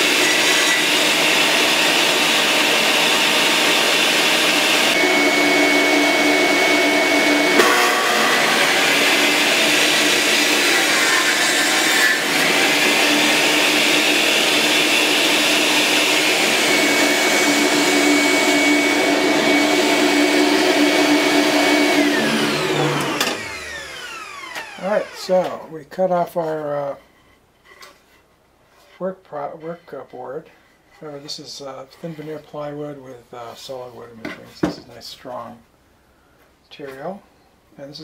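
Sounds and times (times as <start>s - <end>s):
saw winding down: 0.0s - 25.6s
table saw and shop vac whine: 0.0s - 25.7s.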